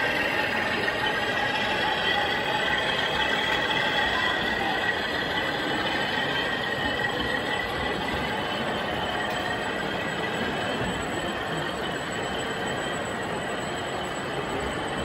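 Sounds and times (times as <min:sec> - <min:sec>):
model train wheels rumbling on rail: 0:00.0 - 0:11.4.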